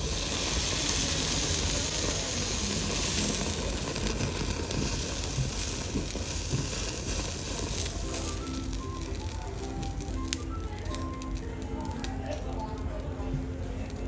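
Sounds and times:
steak sizzling on a grill: 0.0 - 14.0.

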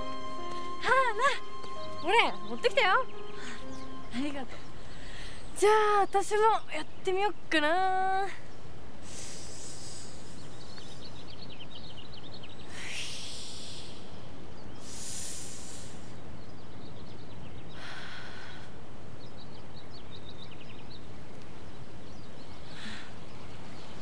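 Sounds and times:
steady outdoor hiss: 0.0 - 24.0
person breathing deeply: 9.0 - 10.6, 12.7 - 16.2, 17.8 - 18.8.

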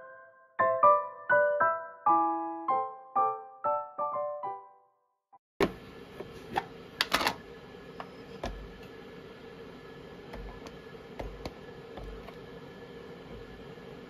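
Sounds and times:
faint steady hum: 5.6 - 14.0.

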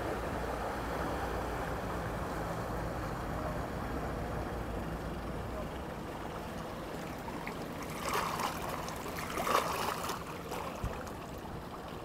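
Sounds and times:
water sloshing and splashing: 5.7 - 12.0.

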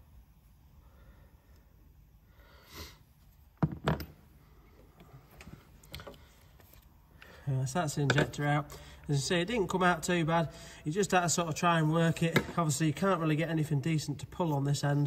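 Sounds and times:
faint handling noise: 3.2 - 7.4.

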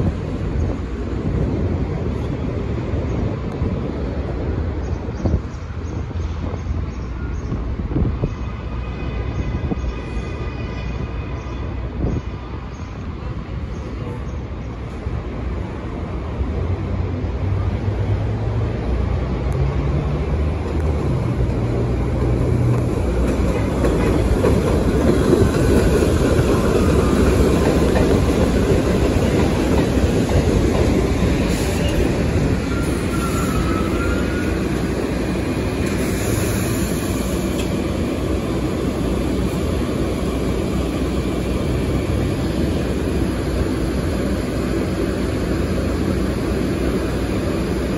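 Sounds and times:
train wheels rumbling and clattering: 0.0 - 47.9
wheel squeal: 31.7 - 34.7.

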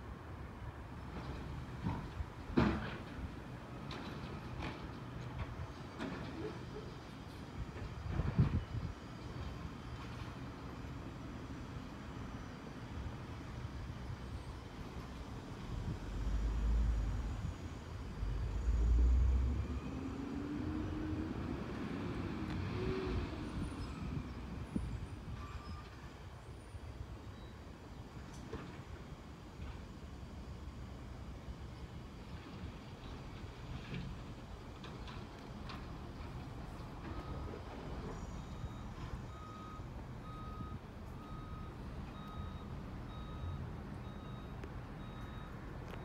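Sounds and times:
truck backup alarm beeping: 37.0 - 46.0.

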